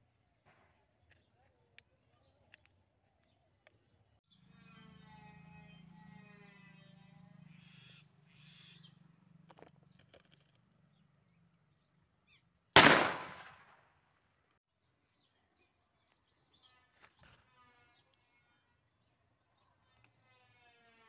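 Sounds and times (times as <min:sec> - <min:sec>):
pistol bang: 0:12.8 - 0:13.7.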